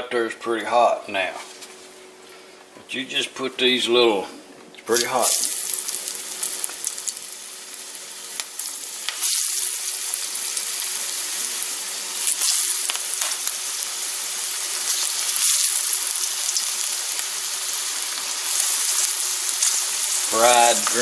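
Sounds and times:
slices sizzling in hot oil: 4.9 - 21.0.

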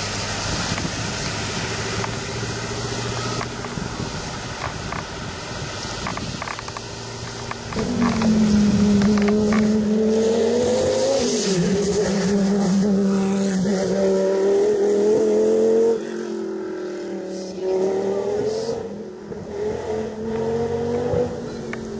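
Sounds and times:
rally car engine revving: 0.0 - 16.3, 17.0 - 21.9
tyres hissing on wet road: 0.0 - 21.9.

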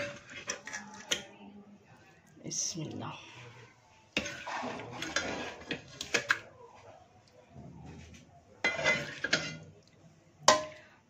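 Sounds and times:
spoon scraping metal pot: 0.0 - 1.2, 3.6 - 6.5, 8.6 - 9.7.

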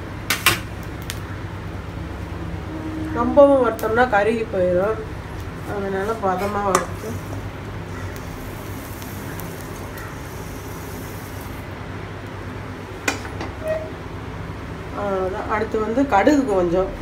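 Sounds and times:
steady low hum: 0.0 - 17.0
seeds rustling in a pan: 5.4 - 11.6.

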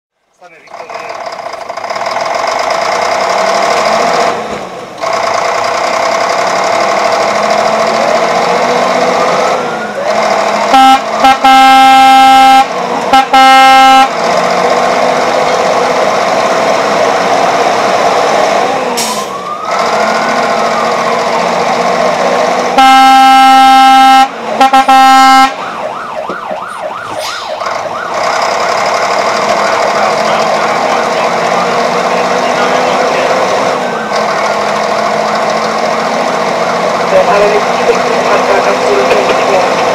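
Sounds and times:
siren wailing: 6.8 - 35.9
air horn blast: 10.6 - 14.2, 22.7 - 25.6
siren yelping warble: 19.2 - 21.7, 22.8 - 30.0
steady drone: 19.6 - 39.9.

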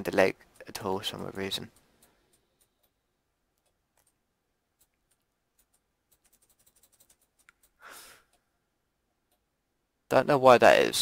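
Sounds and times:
computer mouse clicks: 3.6 - 4.2, 4.8 - 8.4.

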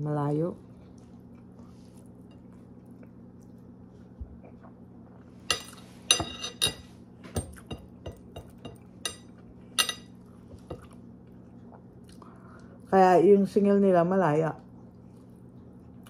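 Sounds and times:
low steady hum: 0.0 - 16.0
ceramic plate clinking: 5.5 - 6.9, 7.7 - 10.1.

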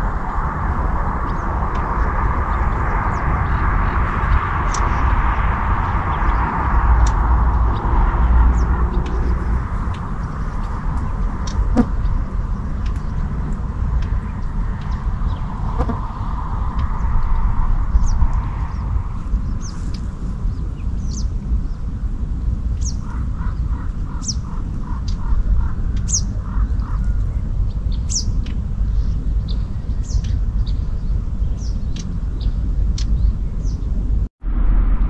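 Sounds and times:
wild birds chirping: 0.0 - 34.1
steady low rumble: 0.0 - 35.0.

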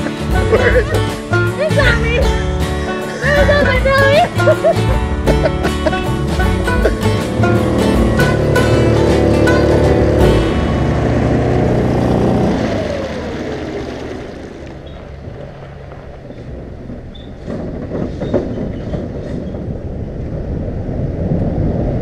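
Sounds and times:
background music: 0.0 - 13.3
road noise: 0.0 - 22.0
low rumble: 0.2 - 22.0
wind buffeting a camera: 16.0 - 22.0.

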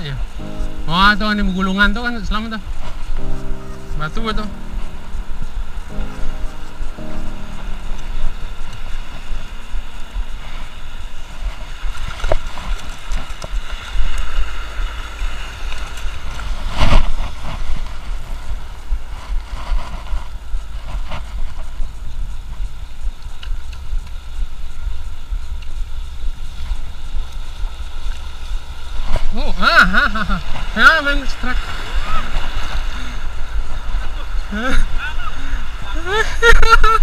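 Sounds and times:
wind buffeting microphone: 0.0 - 29.6
sea wash: 26.5 - 36.6.

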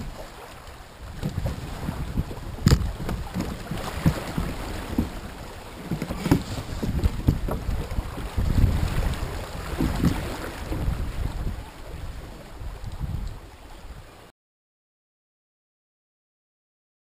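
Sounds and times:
wind buffeting microphone: 0.0 - 14.2
river water rushing and splashing: 0.0 - 14.3
sharp knocks on canoe: 1.1 - 8.8, 9.7 - 11.0.

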